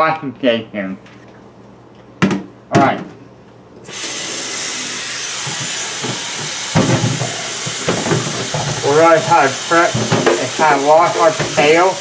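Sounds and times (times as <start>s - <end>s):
faucet turning on: 3.9s - 12.0s
tap water running into sink: 5.4s - 12.0s.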